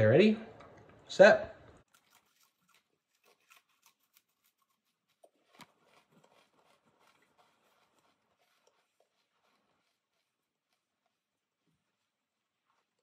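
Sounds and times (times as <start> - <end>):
crackers being chewed: 1.8 - 11.4.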